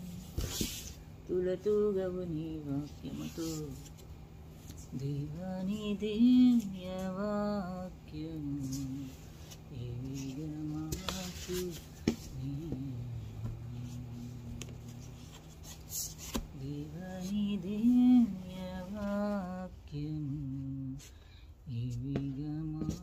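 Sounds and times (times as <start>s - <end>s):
woman humming: 0.0s - 0.2s, 9.7s - 15.2s.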